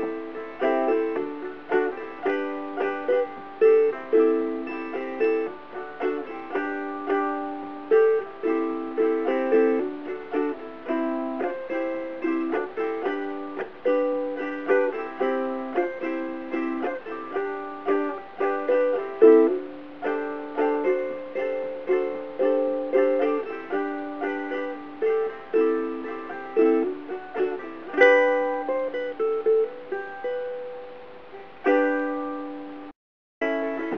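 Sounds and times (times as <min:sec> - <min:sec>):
ukulele chords strummed: 0:00.0 - 0:33.9.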